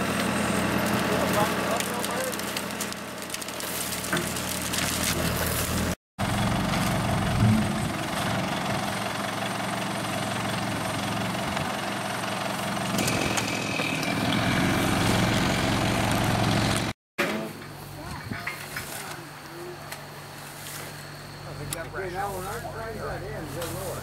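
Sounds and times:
backhoe engine idling: 6.2 - 16.9.

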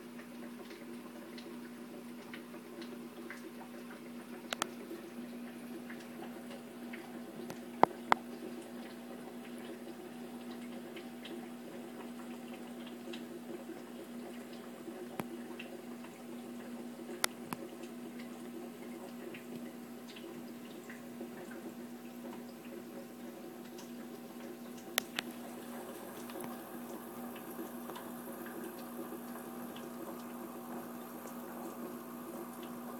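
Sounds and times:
aquarium filter bubbling: 0.0 - 32.9
small drip-like clicks: 0.0 - 32.9
steady low hum: 25.0 - 32.9.

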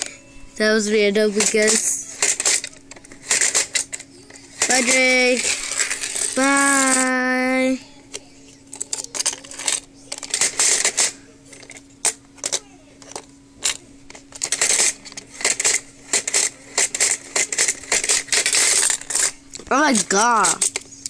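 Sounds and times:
faint steady hum: 0.0 - 21.0
plastic toy pieces clattering: 1.0 - 21.0.

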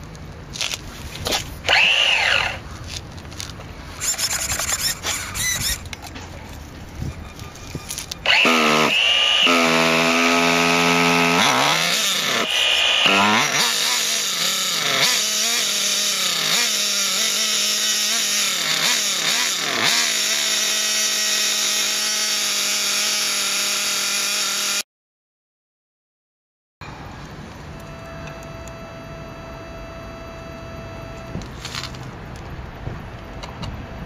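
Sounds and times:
small nitro engine running: 1.6 - 2.6, 4.0 - 5.9, 7.1 - 24.8.

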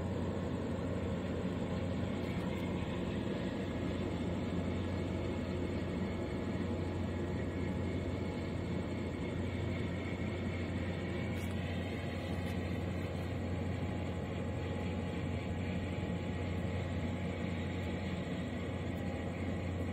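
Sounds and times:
constant low hum: 0.0 - 19.9
low mechanical rumble: 0.0 - 19.9.

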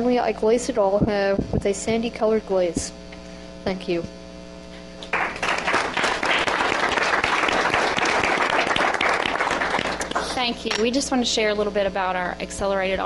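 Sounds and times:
electrical hum: 0.0 - 13.0
audience applauding: 5.1 - 10.4.

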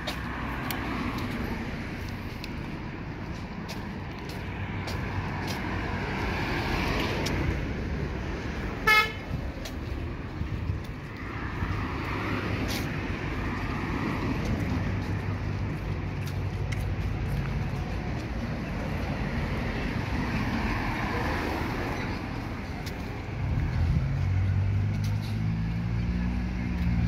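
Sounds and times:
vehicles passing: 0.0 - 27.0
car horn toot: 8.8 - 9.3.

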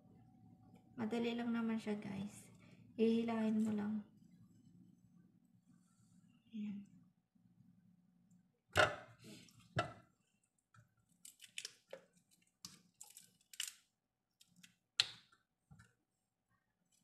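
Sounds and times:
shrimp shells crackling: 11.2 - 14.7.

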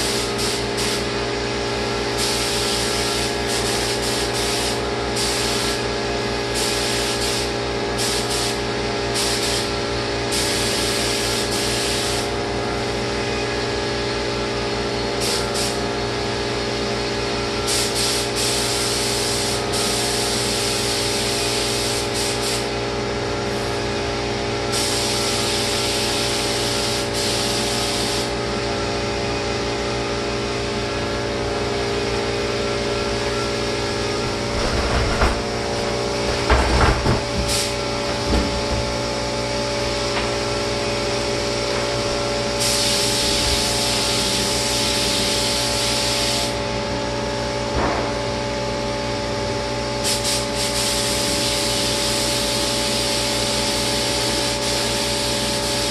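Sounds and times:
spray gun hissing: 0.0 - 1.2, 2.0 - 12.3, 15.2 - 15.8, 17.7 - 22.8, 24.7 - 28.4, 37.2 - 40.8, 42.5 - 46.6, 50.0 - 55.9
sprayer pump hum: 0.0 - 55.9.

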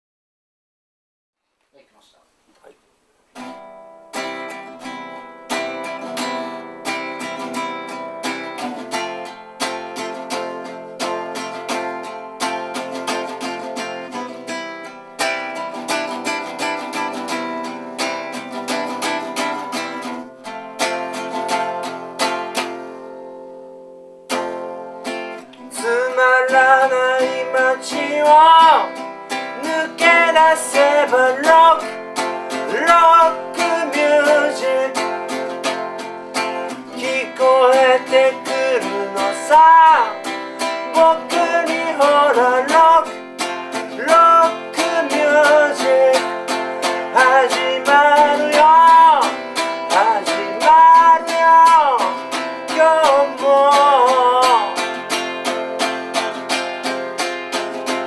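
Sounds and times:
acoustic guitar playing: 3.0 - 58.0
person singing: 25.5 - 56.5.

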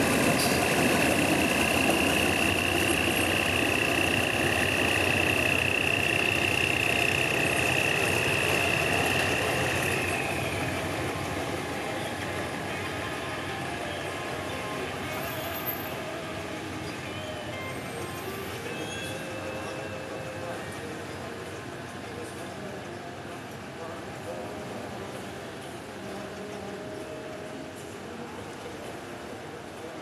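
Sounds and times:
high steady whine: 0.0 - 18.4
diesel locomotive engine: 0.0 - 30.0.

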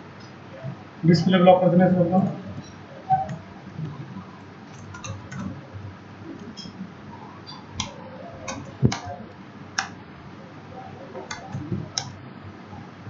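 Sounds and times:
computer keyboard keystrokes: 4.7 - 5.6, 7.8 - 9.2, 11.2 - 12.2.

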